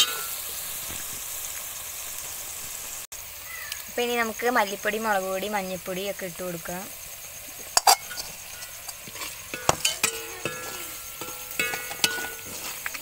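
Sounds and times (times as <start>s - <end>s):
onions frying: 0.0s - 13.0s
spatula scraping metal pan: 7.6s - 13.0s.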